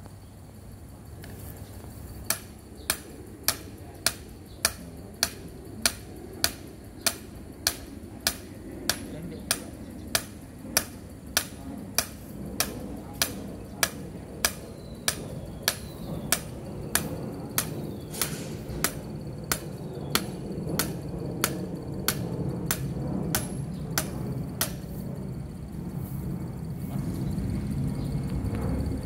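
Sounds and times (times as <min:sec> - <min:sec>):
hammer striking steel rod: 0:02.3 - 0:24.8.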